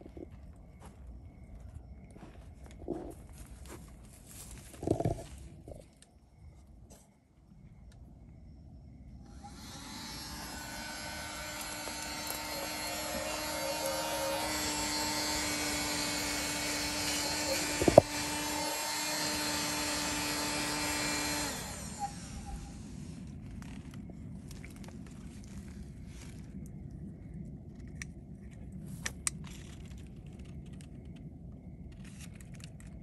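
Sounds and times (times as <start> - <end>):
handheld vacuum cleaner running: 9.3 - 23.2.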